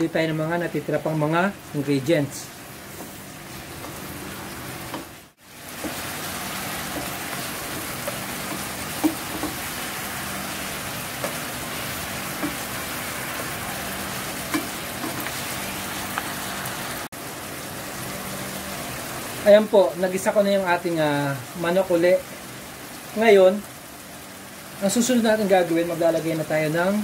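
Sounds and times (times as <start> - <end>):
chicken sizzling in a frying pan: 0.0 - 27.0
spoon knocking against a pan: 6.9 - 9.6.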